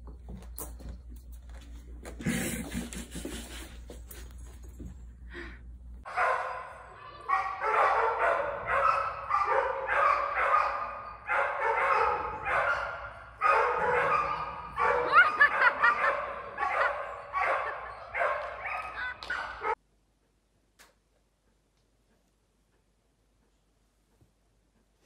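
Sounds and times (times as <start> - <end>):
dog barking: 6.1 - 19.8.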